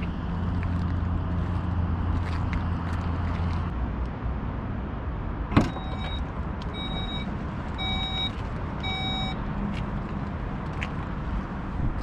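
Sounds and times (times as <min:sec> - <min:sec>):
electronic warning chime beeping: 0:06.8 - 0:09.4.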